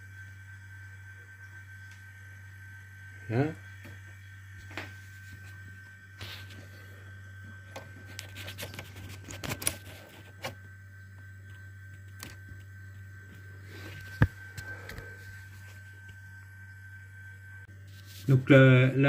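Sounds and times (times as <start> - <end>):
steady low hum: 0.0 - 19.0
screwdriver clicks and scrapes: 7.8 - 10.6.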